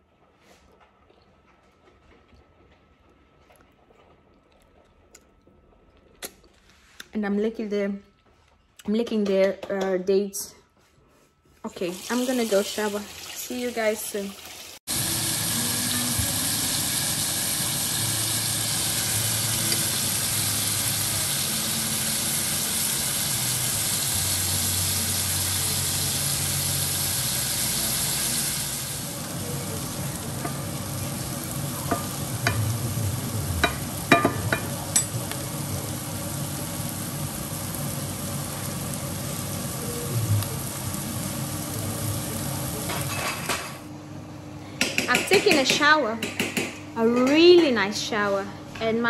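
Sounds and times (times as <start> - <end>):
vegetables sizzling softly: 11.6 - 43.4
meat sizzling in a frying pan: 11.9 - 43.3.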